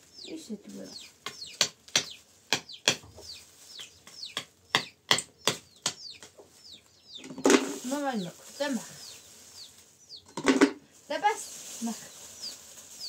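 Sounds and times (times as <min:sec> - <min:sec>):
chicks cheeping: 0:00.0 - 0:13.0
sharp knocks: 0:04.1 - 0:06.4.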